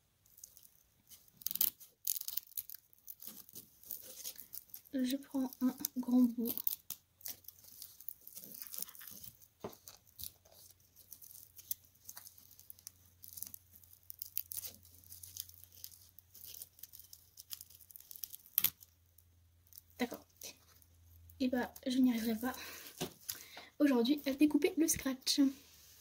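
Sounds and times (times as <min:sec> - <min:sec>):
velcro crackling and rasping: 0:00.2 - 0:19.0.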